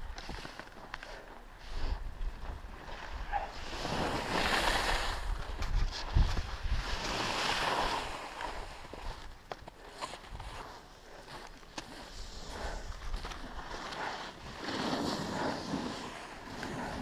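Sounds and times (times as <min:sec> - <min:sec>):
skis scraping on snow: 0:00.1 - 0:17.0
wind rumble on microphone: 0:01.6 - 0:09.5.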